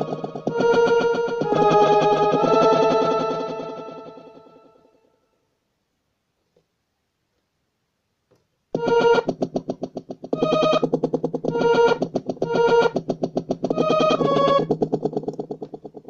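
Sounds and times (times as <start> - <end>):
keyboard pulsing pitched voice: 0.0 - 4.6.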